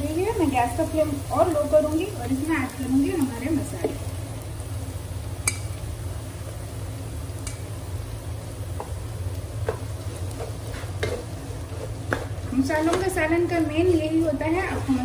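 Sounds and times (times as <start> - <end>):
onions frying in oil: 0.0 - 15.0
steady low hum: 0.0 - 15.0
spatula knocking and scraping pot: 9.6 - 13.2.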